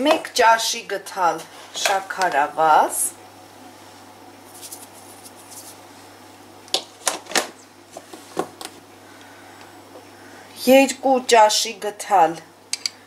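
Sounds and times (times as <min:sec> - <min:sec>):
faint rustle of sugar: 0:03.8 - 0:05.9.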